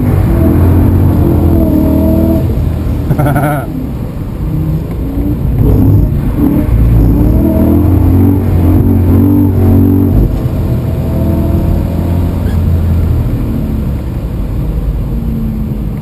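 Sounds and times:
car engine at high revs: 0.0 - 16.0.

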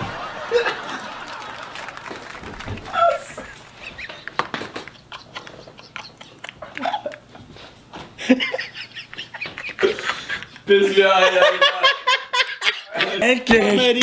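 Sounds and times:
men laughing breathlessly: 0.0 - 13.3.

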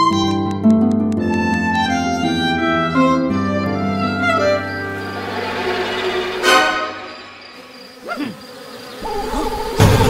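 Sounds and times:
cartoon string music: 0.0 - 7.1
swarm of flies buzzing: 3.8 - 10.0.

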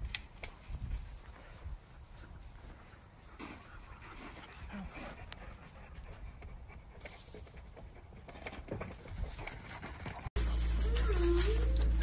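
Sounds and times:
dog panting: 1.4 - 10.3.

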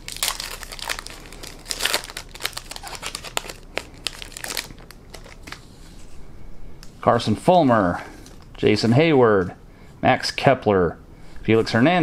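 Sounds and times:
wrapper crinkling and tearing: 0.0 - 5.6.

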